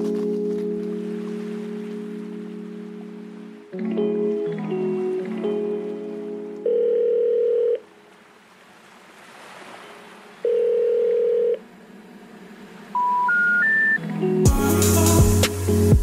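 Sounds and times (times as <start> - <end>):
telephone ringing tones: 6.6 - 7.9, 10.4 - 11.6
rising short beeps: 13.0 - 14.0.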